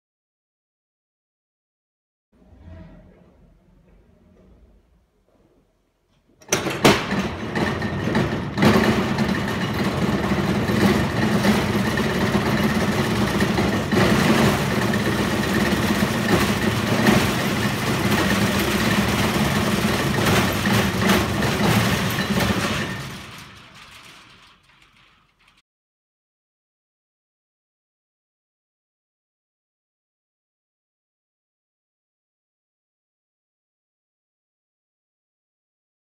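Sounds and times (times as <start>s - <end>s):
metal clank: 6.4s - 25.6s
rolling steel door rumbling down: 6.4s - 25.6s.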